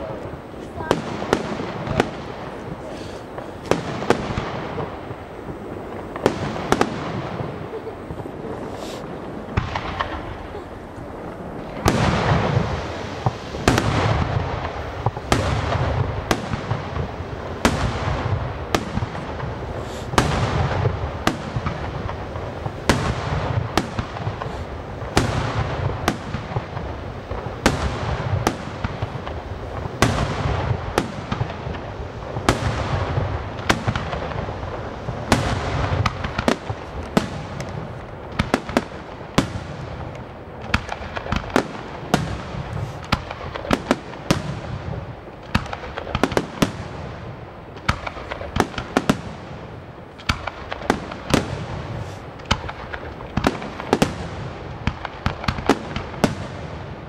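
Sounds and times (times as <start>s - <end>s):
firework shells bursting: 0.0s - 46.9s
dense firework crackling: 0.0s - 57.0s.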